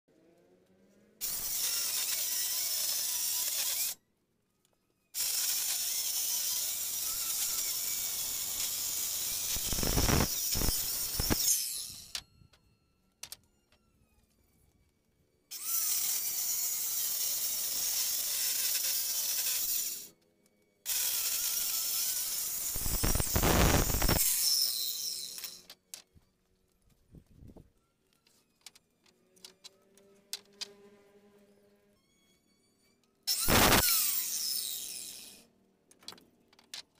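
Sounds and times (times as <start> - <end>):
electric circular saw cutting wood: 0.1 - 4.0, 5.2 - 12.2, 15.5 - 20.2, 20.8 - 25.7, 29.3 - 32.0, 33.3 - 35.5.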